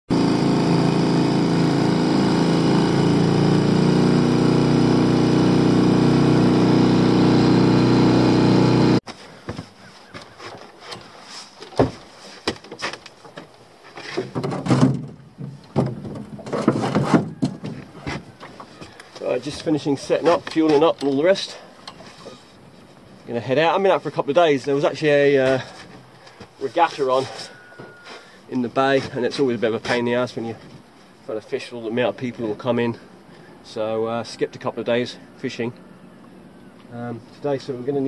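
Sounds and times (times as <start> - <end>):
outboard motor running: 0.1 - 9.0
gear clattering in boat: 9.1 - 22.9.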